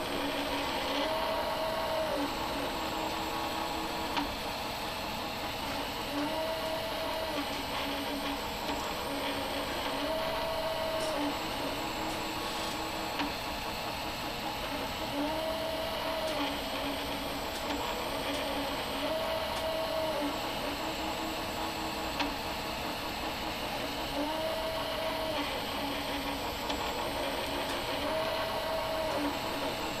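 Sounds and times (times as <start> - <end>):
stepper motors whining: 0.0 - 4.6, 6.1 - 12.4, 24.3 - 30.0
steady machine whir: 0.0 - 30.0.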